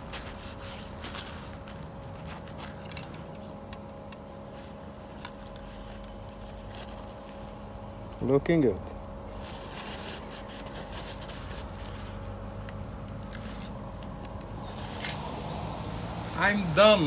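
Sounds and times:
paper towel crinkling: 0:00.0 - 0:03.3, 0:09.3 - 0:12.4
low machinery hum: 0:00.0 - 0:17.0.

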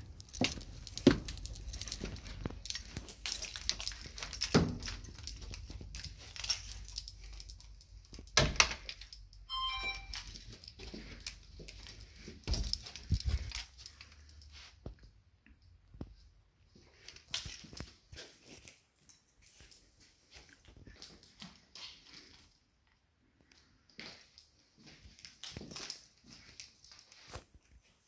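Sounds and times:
footsteps: 0:00.0 - 0:07.2, 0:09.8 - 0:15.0.

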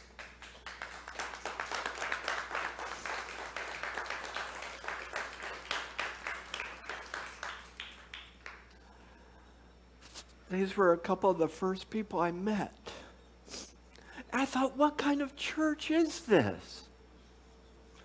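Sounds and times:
congregation applauding: 0:00.0 - 0:08.8.

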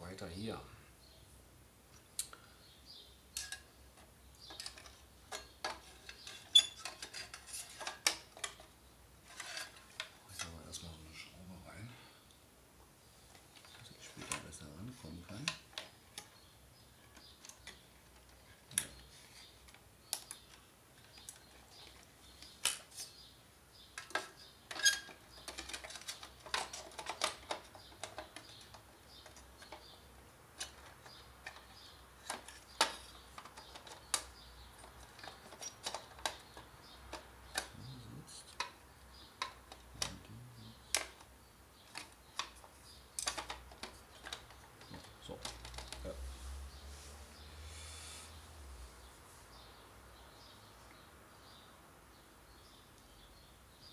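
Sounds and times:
plastic parts clicking: 0:03.4 - 0:08.7, 0:24.0 - 0:37.8, 0:39.4 - 0:46.2.

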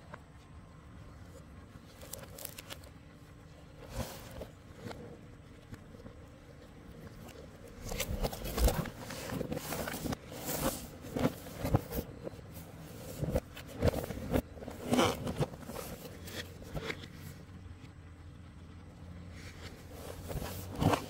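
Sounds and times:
cardboard box scraping and rustling: 0:03.8 - 0:05.2, 0:07.3 - 0:17.4, 0:19.3 - 0:21.0.

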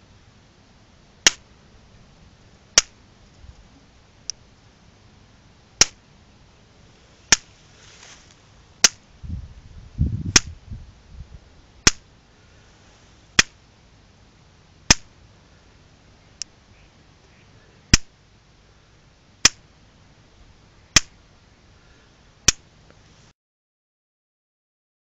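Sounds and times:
electric fence spark snaps: 0:01.2 - 0:01.4, 0:02.8 - 0:03.0, 0:05.8 - 0:06.0, 0:07.3 - 0:07.5, 0:10.3 - 0:10.5, 0:11.8 - 0:12.0, 0:14.9 - 0:15.1, 0:21.0 - 0:21.2.

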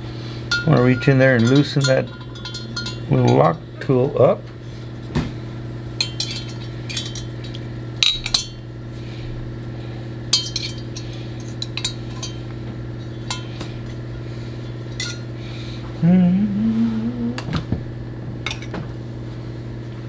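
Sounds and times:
steady low hum: 0:00.0 - 0:20.0
steel tools clinking on metal: 0:00.5 - 0:03.6, 0:06.0 - 0:08.7, 0:10.3 - 0:14.0, 0:14.9 - 0:15.3, 0:18.5 - 0:18.7.

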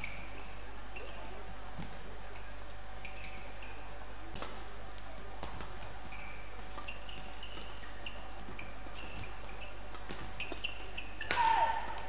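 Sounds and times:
shoes squeaking on court: 0:00.0 - 0:04.5, 0:05.4 - 0:11.4
rackets hitting shuttlecock: 0:08.6 - 0:12.0.

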